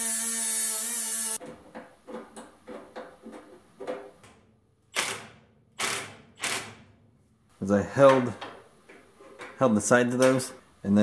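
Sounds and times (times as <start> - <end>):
impact driver bursts: 4.9 - 6.9.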